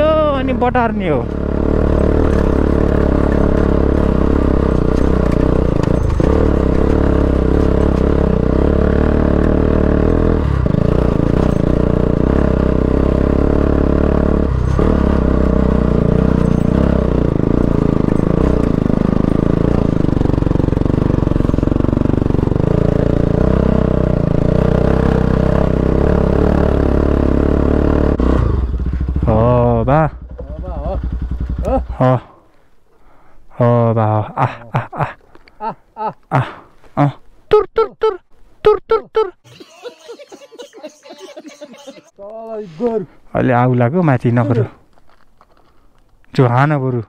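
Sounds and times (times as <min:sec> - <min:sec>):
motorcycle engine revving: 0:00.0 - 0:32.4.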